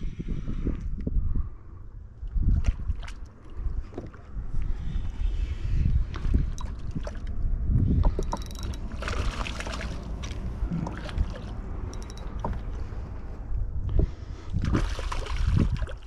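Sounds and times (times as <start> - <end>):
wind rumbling on microphone: 0.0 - 16.0
fishing reel clicking: 8.2 - 8.8, 11.9 - 12.4
fish splashing in water: 8.2 - 12.8, 14.6 - 16.0.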